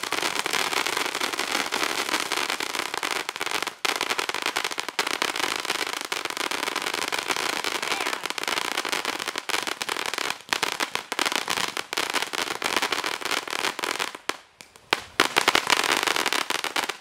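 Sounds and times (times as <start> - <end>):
firework crackling: 0.0 - 17.0
loud firework pops: 13.4 - 17.0.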